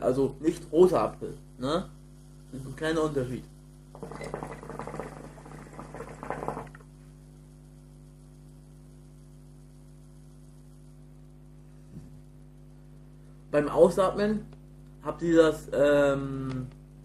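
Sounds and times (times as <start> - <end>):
low electrical hum: 0.0 - 17.0
hookah water bubbling: 3.9 - 7.0.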